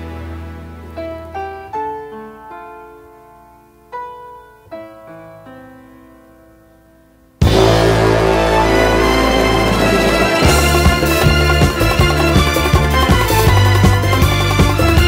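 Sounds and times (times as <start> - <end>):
slow piano notes and chords: 0.0 - 14.2
loud full music track: 7.4 - 15.0.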